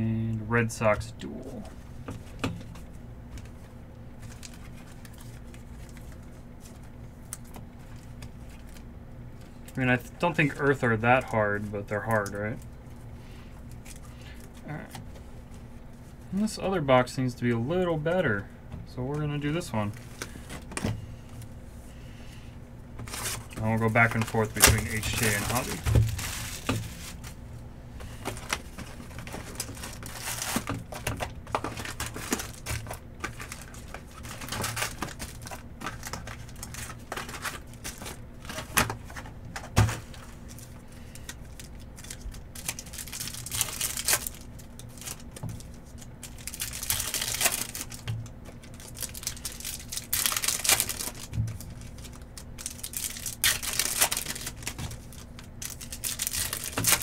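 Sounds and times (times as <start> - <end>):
foil wrappers tearing and crinkling: 4.1 - 8.8, 23.0 - 27.4, 28.1 - 57.0
cards clicking and rustling: 23.0 - 27.4, 28.0 - 57.0.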